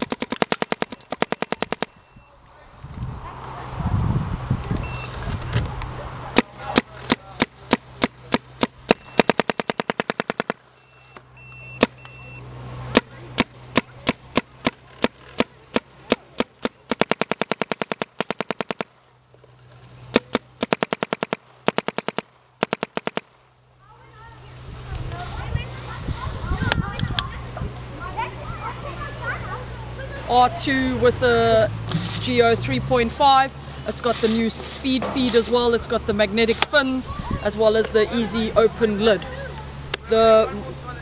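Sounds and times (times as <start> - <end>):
paintball marker firing: 0.0 - 2.0, 6.4 - 10.6, 11.8 - 12.0, 12.9 - 18.9, 20.1 - 23.3.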